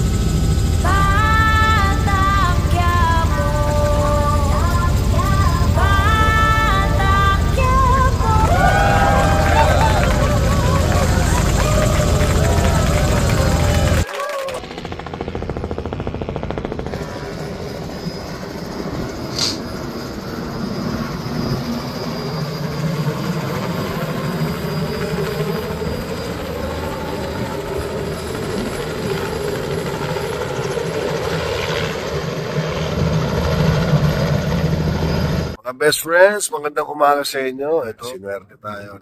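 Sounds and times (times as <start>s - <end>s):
helicopter rotor thrumming: 0.0s - 35.6s
short high squeak: 19.3s - 19.8s.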